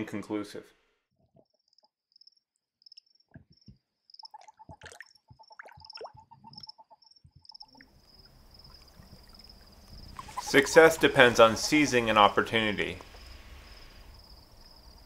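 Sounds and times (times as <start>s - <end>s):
toad chirping: 1.4s - 12.4s
cricket chirping: 1.4s - 15.0s
splashes in shallow water: 7.8s - 13.8s.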